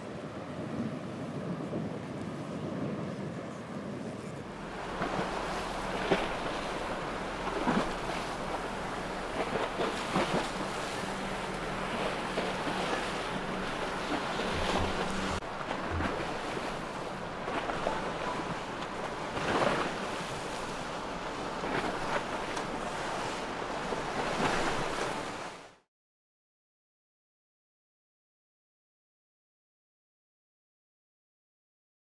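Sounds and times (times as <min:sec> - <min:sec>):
wind buffeting microphone: 0:00.0 - 0:25.6
water washing against hull: 0:00.0 - 0:25.9
low hum: 0:04.3 - 0:24.2.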